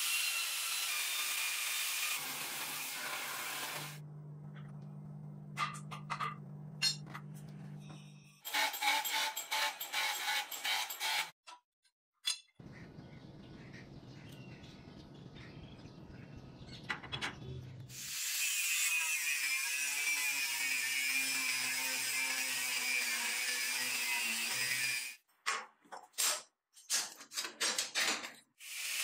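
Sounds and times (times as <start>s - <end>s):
electric grinder on steel: 0.0s - 4.0s, 8.5s - 11.3s, 17.9s - 25.2s, 28.6s - 29.0s.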